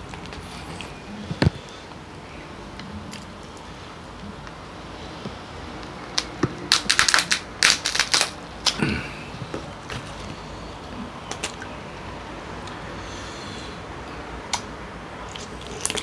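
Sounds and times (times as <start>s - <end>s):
crab shell cracking: 6.2s - 8.8s.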